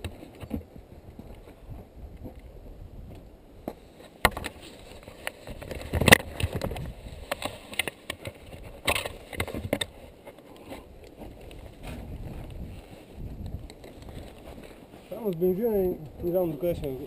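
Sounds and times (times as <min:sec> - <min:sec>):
goggles handling knocks and rubbing: 0:03.7 - 0:15.7.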